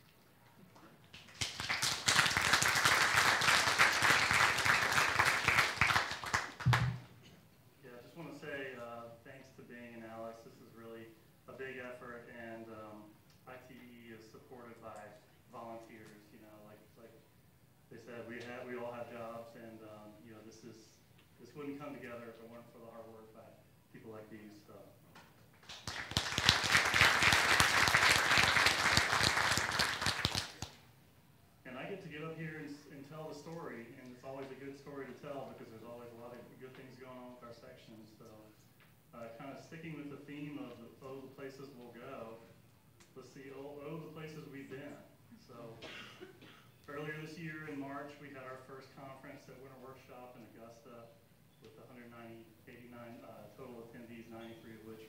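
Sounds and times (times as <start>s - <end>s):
audience applauding: 1.2s - 7.1s, 25.6s - 30.8s.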